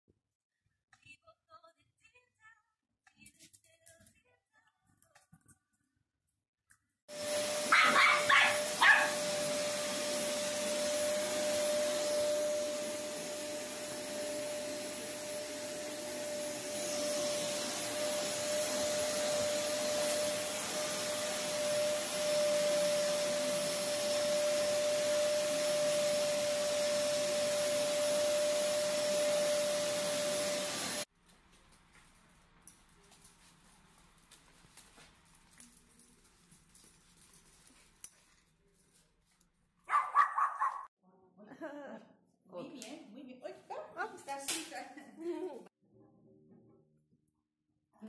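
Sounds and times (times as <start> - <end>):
vacuum cleaner running: 7.1 - 31.1
dog yapping: 7.6 - 9.3, 39.9 - 40.9.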